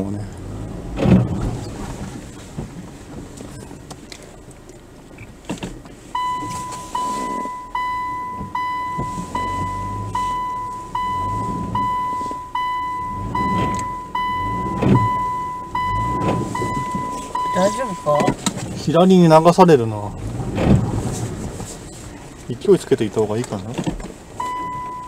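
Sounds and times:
car rumbling over dirt track: 0:00.0 - 0:06.1, 0:08.2 - 0:25.0
car warning beeps: 0:06.1 - 0:18.9, 0:24.4 - 0:25.0.

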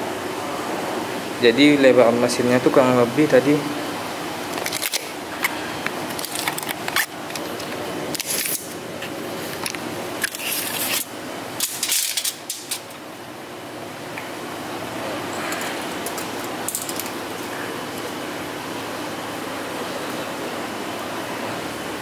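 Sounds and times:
tape measure clicks and scrapes: 0:06.2 - 0:08.7, 0:10.2 - 0:12.9.

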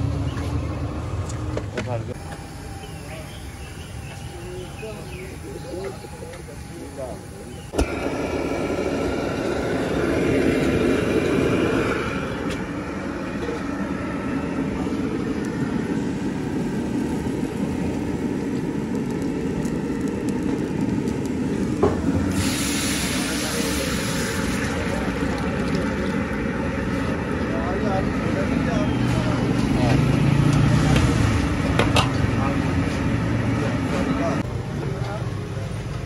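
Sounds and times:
street traffic: 0:00.0 - 0:36.0
bright hiss: 0:22.2 - 0:25.2.

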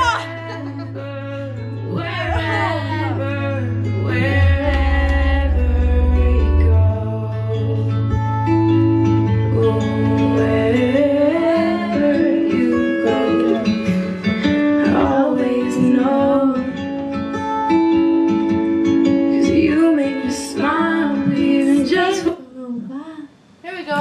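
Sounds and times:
woman singing into a microphone: 0:00.0 - 0:08.0, 0:09.4 - 0:14.0, 0:14.8 - 0:17.0, 0:19.3 - 0:23.3
backing track with acoustic guitar: 0:00.0 - 0:22.9.

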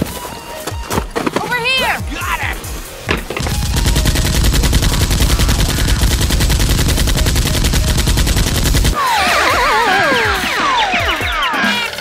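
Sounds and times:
automatic gunfire: 0:03.4 - 0:09.0.

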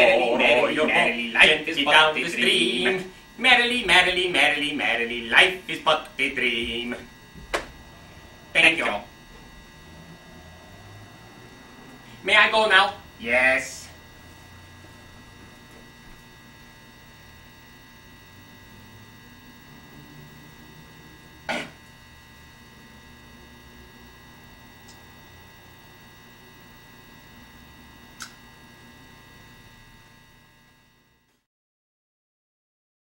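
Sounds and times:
electrical hum: 0:00.0 - 0:31.4.

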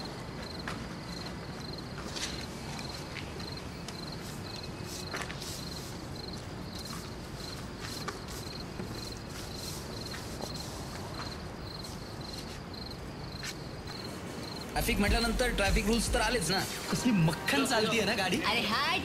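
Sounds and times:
cricket chirping: 0:00.0 - 0:17.2
low background rumble: 0:14.8 - 0:16.6.

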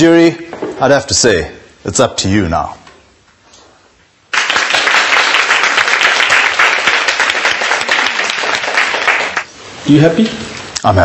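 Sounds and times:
hands clapping: 0:04.3 - 0:09.5.

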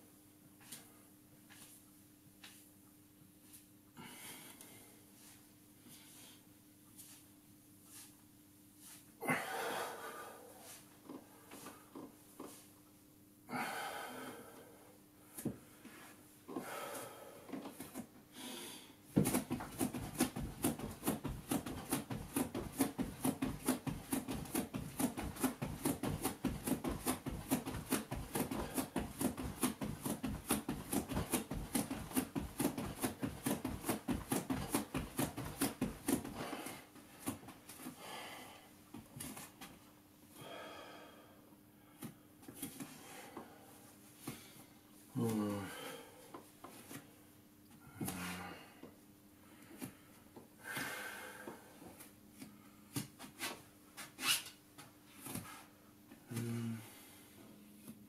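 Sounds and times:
heavy breathing: 0:04.0 - 0:05.1, 0:09.2 - 0:12.6, 0:13.5 - 0:19.0, 0:36.2 - 0:38.8, 0:40.4 - 0:46.4, 0:47.8 - 0:52.9, 0:56.3 - 0:57.5.

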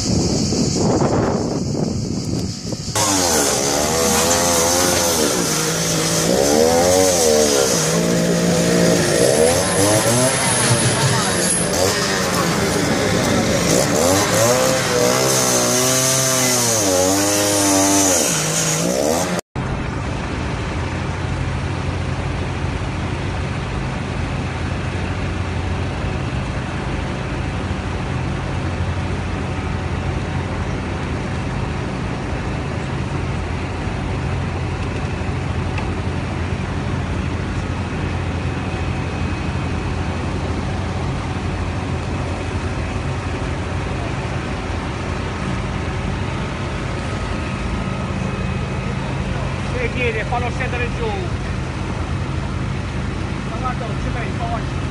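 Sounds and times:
engine revving: 0:00.0 - 0:19.4
diesel machinery droning: 0:00.0 - 0:54.9.

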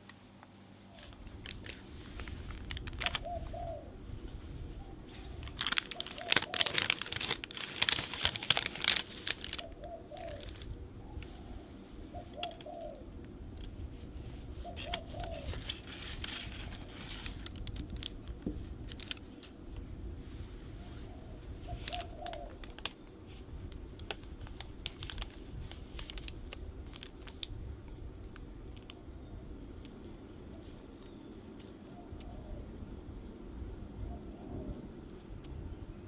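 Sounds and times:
paper liner crinkling: 0:00.9 - 0:03.6, 0:05.1 - 0:10.7, 0:13.5 - 0:19.7, 0:21.6 - 0:29.0
dove cooing: 0:02.8 - 0:04.2, 0:04.8 - 0:17.1, 0:20.7 - 0:22.9, 0:30.2 - 0:32.9, 0:33.9 - 0:35.1.

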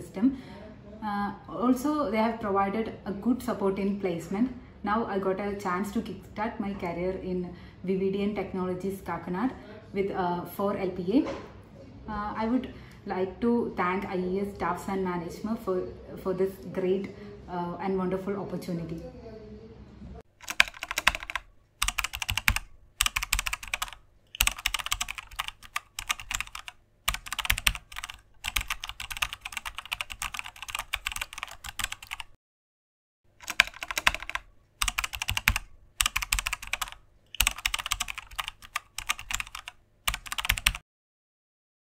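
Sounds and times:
keyboard typing: 0:20.4 - 0:32.4, 0:33.4 - 0:40.8.

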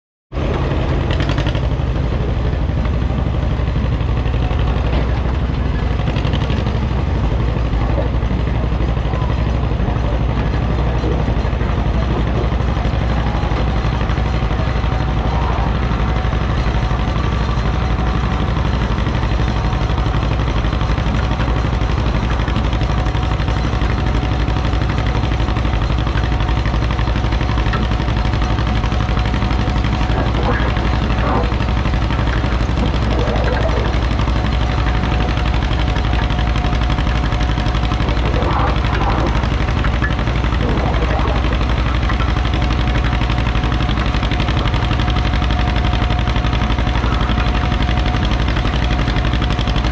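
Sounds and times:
tractor engine idling: 0:00.4 - 0:49.9.

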